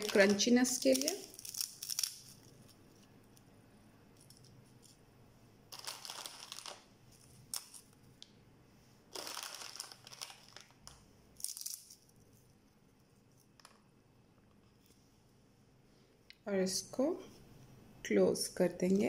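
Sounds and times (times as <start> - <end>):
potato chips crinkling and crackling: 0.0 - 2.8, 5.7 - 6.9, 9.1 - 12.1.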